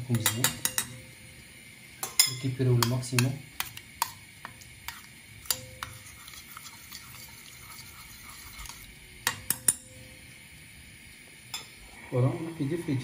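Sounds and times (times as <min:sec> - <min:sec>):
spoon stirring in a saucepan: 0:00.0 - 0:01.2, 0:02.0 - 0:10.2
spoon knocking on a pan: 0:00.1 - 0:01.0, 0:02.0 - 0:06.0.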